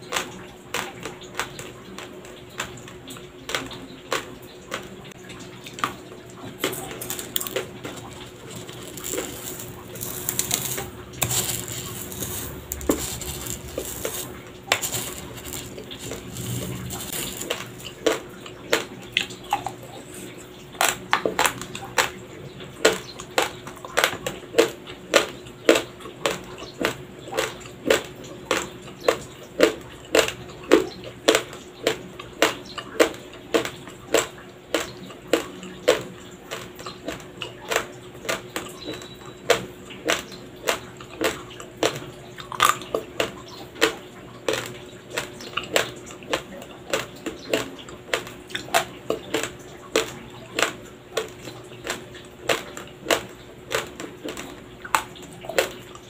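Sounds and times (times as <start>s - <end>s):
crunching of raw rice being chewed: 0.0s - 5.0s, 5.7s - 56.0s
dry rice grains rustling: 6.6s - 18.2s.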